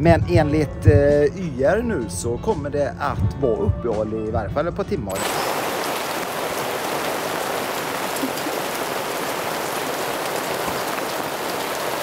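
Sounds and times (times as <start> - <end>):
steady rain hiss: 5.2 - 12.0.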